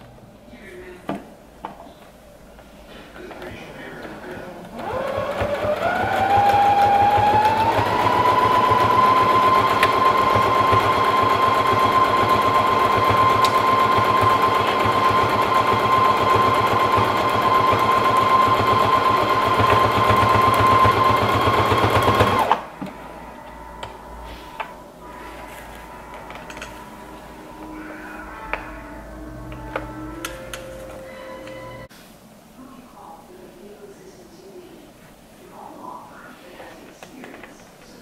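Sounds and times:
sewing machine stitching: 0:04.0 - 0:22.7.

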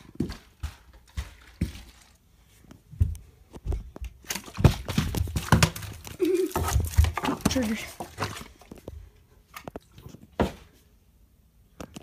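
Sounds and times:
footsteps on carpeted stairs: 0:00.0 - 0:01.9, 0:02.5 - 0:05.7.

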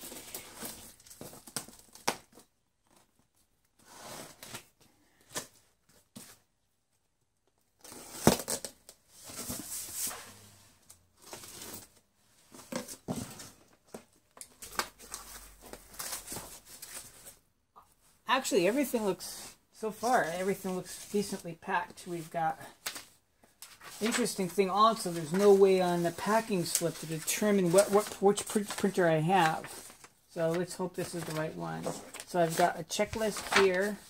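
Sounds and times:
packing sheet rustling: 0:22.2 - 0:34.0.

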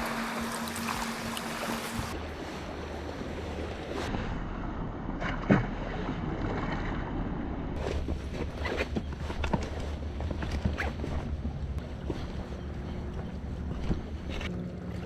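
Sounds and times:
sea surf: 0:00.0 - 0:04.8.

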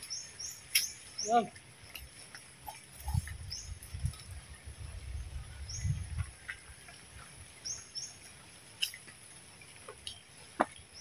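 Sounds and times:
bird chirping: 0:00.0 - 0:02.0, 0:02.6 - 0:04.2, 0:07.2 - 0:08.4.

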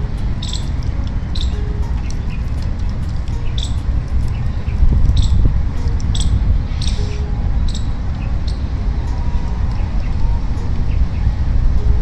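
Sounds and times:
low rumble: 0:00.0 - 0:12.0
bird chirps: 0:00.4 - 0:05.4, 0:06.1 - 0:11.4.

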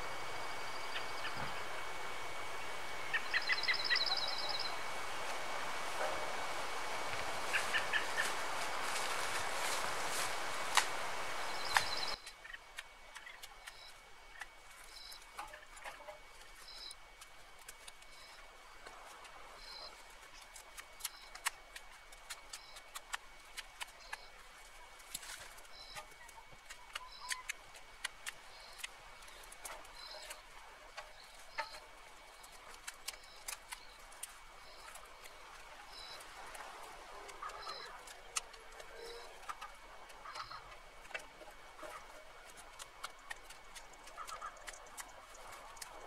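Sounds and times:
bird chirping: 0:00.7 - 0:01.7, 0:03.0 - 0:04.9, 0:07.5 - 0:08.4, 0:11.4 - 0:12.6, 0:13.2 - 0:14.0, 0:14.9 - 0:15.2, 0:16.6 - 0:17.0, 0:25.7 - 0:27.6, 0:28.4 - 0:30.4, 0:31.1 - 0:36.3, 0:37.2 - 0:39.6
dry branches snapping and crackling: 0:07.1 - 0:46.0.

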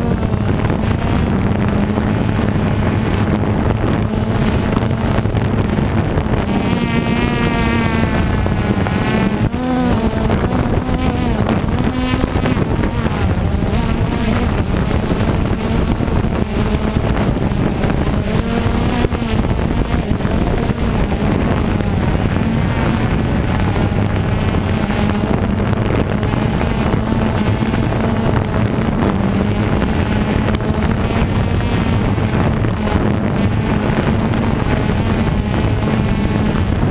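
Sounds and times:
drone propellers buzzing: 0:00.0 - 0:36.9
wind buffeting microphone: 0:00.0 - 0:36.9.

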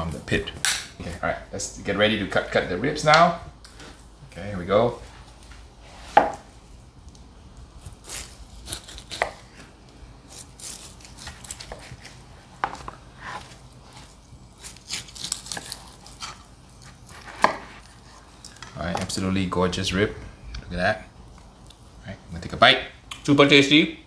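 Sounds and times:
knife slicing ribs: 0:07.8 - 0:09.7, 0:10.3 - 0:18.6.

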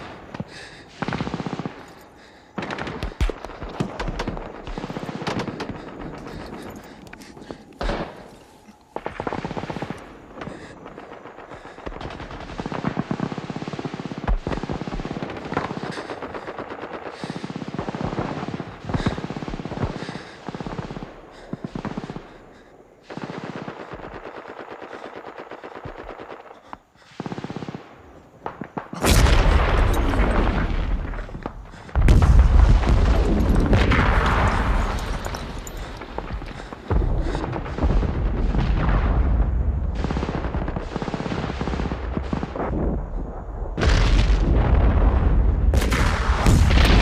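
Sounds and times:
single gunshots: 0:28.4 - 0:39.2
heavy explosions with deep rumble: 0:29.0 - 0:47.0
machine-gun fire: 0:45.7 - 0:47.0.

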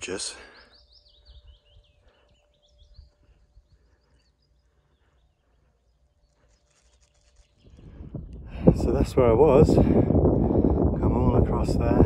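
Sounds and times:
songbird chirps: 0:00.0 - 0:08.4.

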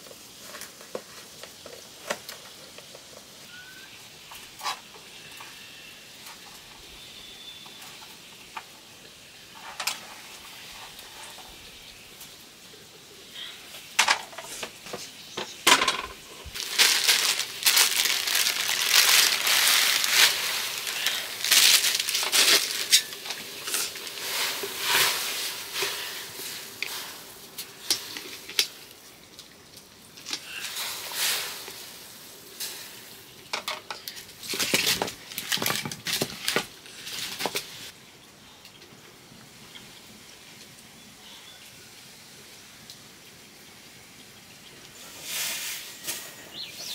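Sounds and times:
pots and utensils clinking: 0:15.4 - 0:27.2.

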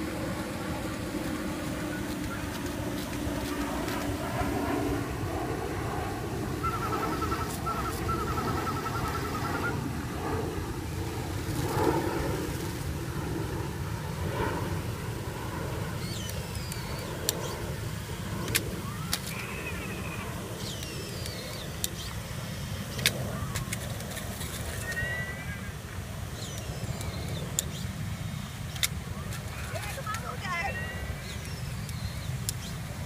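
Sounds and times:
low outdoor rumble: 0:00.0 - 0:33.0
wavering whine: 0:00.0 - 0:33.0
sharp clicks: 0:22.9 - 0:25.0.

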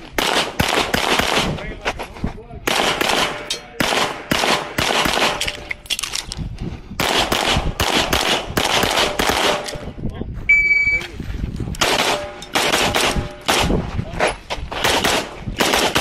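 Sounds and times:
rapid pistol fire: 0:00.2 - 0:01.6, 0:02.7 - 0:05.5, 0:07.0 - 0:09.7, 0:11.8 - 0:13.8, 0:14.7 - 0:16.0.

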